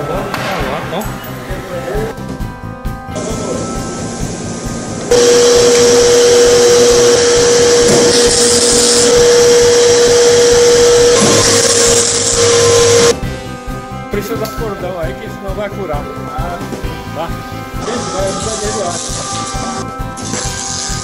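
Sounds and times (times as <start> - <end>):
welding arc hissing: 5.1 - 13.1, 18.5 - 21.0.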